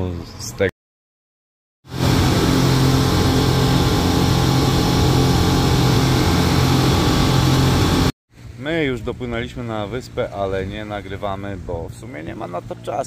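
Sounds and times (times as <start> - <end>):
speedboat engine drone: 1.9 - 8.6
rush of wind and water: 1.9 - 13.0.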